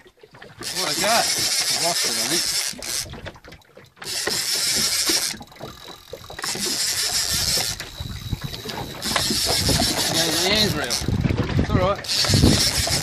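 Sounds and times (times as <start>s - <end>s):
wind buffeting microphone: 5.5s - 13.0s.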